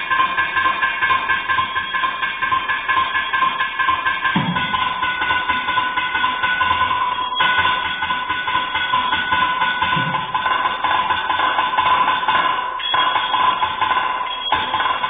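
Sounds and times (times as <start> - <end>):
drums in fast rhythm: 0.0 - 15.0.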